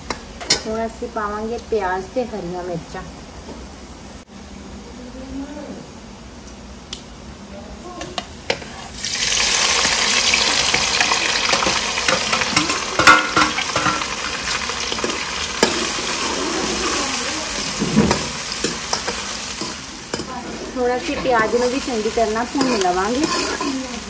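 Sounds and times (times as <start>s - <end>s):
onions sizzling in hot oil: 7.8s - 24.0s
steel ladle scraping a pan: 11.4s - 14.3s, 14.9s - 24.0s.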